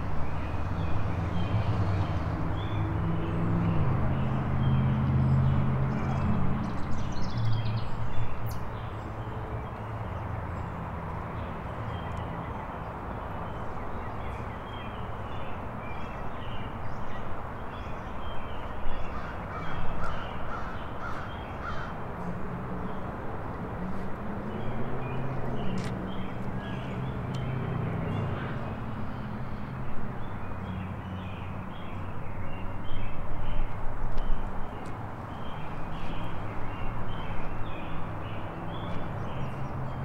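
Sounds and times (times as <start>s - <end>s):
crows cawing: 19.1s - 22.0s
small birds chirping: 24.5s - 40.0s.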